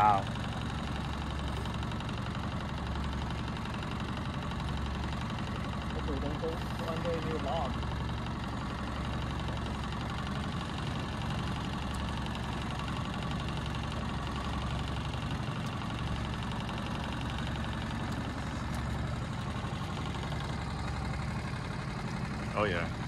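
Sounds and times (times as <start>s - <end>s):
outboard motor idling: 0.0s - 23.0s.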